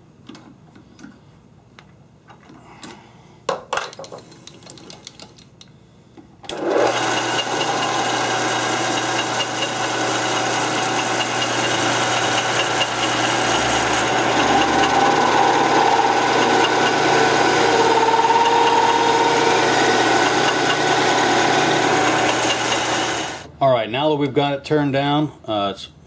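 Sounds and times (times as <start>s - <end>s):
metal lathe humming: 6.5s - 23.5s.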